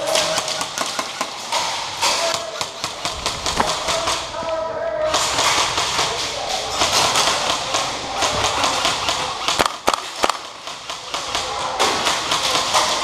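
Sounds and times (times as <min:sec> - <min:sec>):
pellets hitting plywood: 0:00.0 - 0:04.2
airsoft gunfire: 0:00.0 - 0:04.3, 0:05.1 - 0:13.0.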